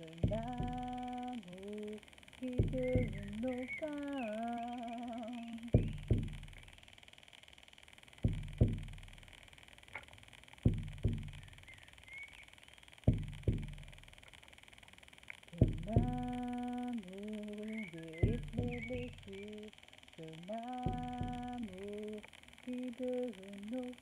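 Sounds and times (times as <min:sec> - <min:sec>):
frame drum booming beats: 0:00.2 - 0:01.0, 0:02.6 - 0:03.4, 0:05.8 - 0:06.7, 0:08.2 - 0:09.4, 0:10.6 - 0:11.6, 0:13.1 - 0:14.2, 0:15.6 - 0:16.4, 0:18.2 - 0:19.3.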